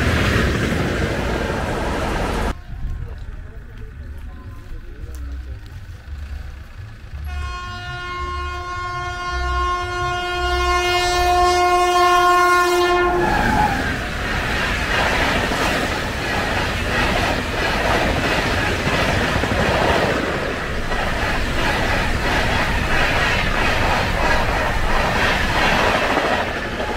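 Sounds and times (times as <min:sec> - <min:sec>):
train coaches rumbling past: 0:00.0 - 0:26.9
locomotive air horn blast: 0:07.2 - 0:13.8.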